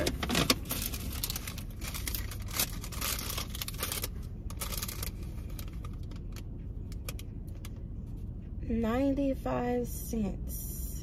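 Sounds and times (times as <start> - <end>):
packaging rustling and crinkling: 0.0 - 6.1
car cabin rumble: 0.0 - 10.4.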